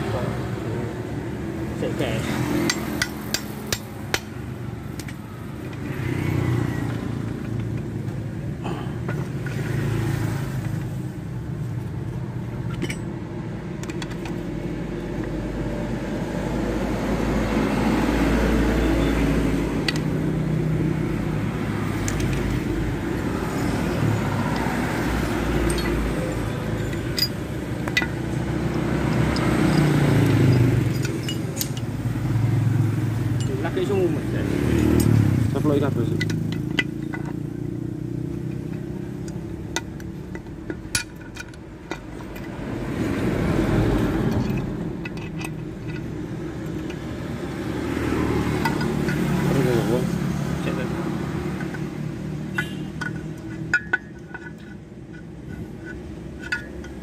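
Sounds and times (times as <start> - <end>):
motor vehicles rumbling: 0.0 - 57.0
metallic clicks of tools: 2.3 - 6.0, 12.6 - 13.2, 19.8 - 20.2, 21.9 - 22.7, 23.4 - 32.1, 34.6 - 49.5, 51.3 - 57.0.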